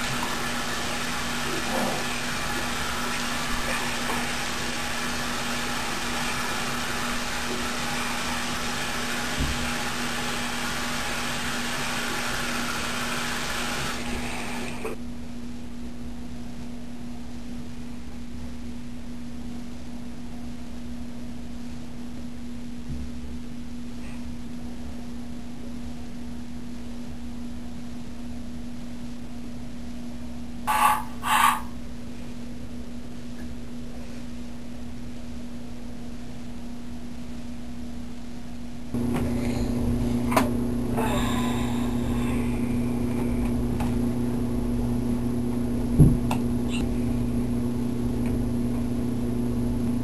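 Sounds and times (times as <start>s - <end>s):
faucet running into sink: 0.0s - 15.0s
steady low hum: 0.0s - 50.0s.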